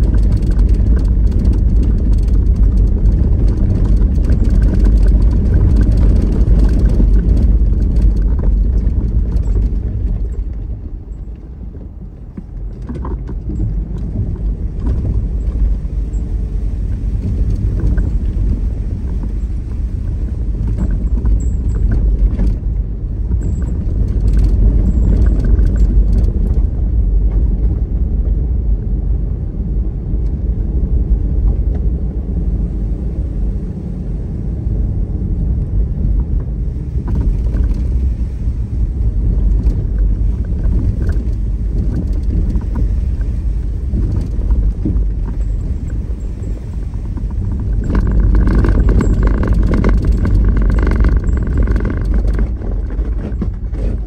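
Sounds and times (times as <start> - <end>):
vehicle rumble: 0.0 - 54.0.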